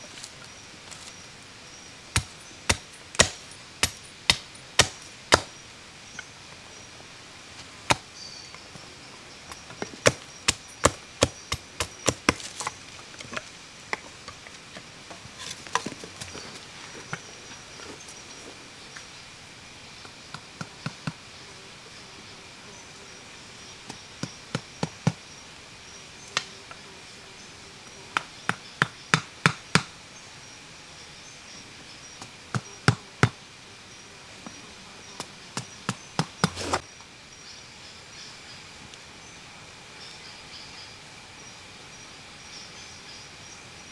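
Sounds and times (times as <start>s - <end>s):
insects droning: 0.0s - 43.9s
wood being chopped: 2.1s - 5.5s, 7.9s - 8.1s, 9.8s - 12.8s, 35.6s - 36.8s.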